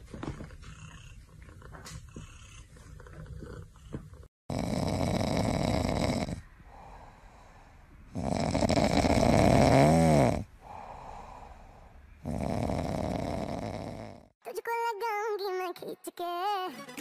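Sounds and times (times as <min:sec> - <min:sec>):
cat snoring: 0:00.4 - 0:14.4
cat breathing: 0:06.2 - 0:08.8, 0:10.5 - 0:12.3.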